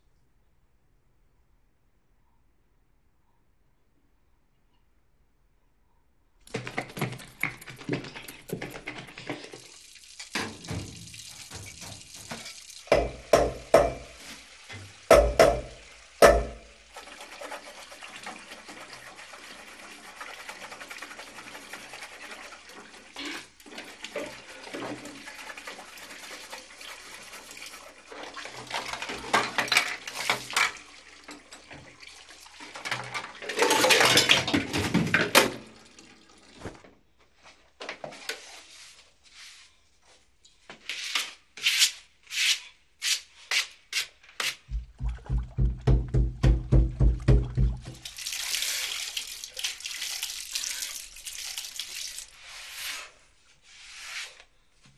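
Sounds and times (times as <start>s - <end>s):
tap running into sink: 6.5s - 16.8s, 44.7s - 48.3s
dishes being washed: 6.5s - 36.9s, 44.4s - 53.2s
sponge scrubbing countertop: 38.4s - 39.8s, 52.3s - 54.5s.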